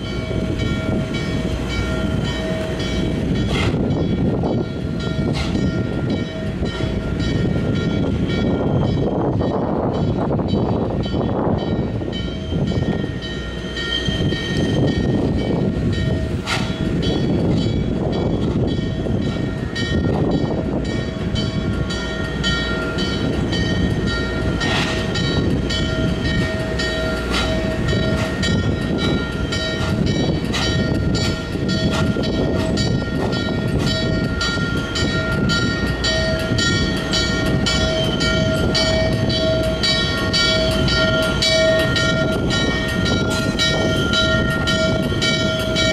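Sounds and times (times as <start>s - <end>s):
rhythmic rail ticks: 0.0s - 45.9s
train rumbling on rails: 0.0s - 45.9s
high metallic wheel squeal: 12.4s - 15.0s.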